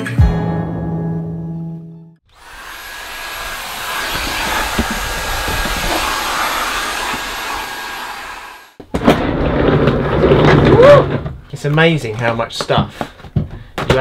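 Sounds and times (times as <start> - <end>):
vacuum cleaner motor whine: 2.3 - 8.8.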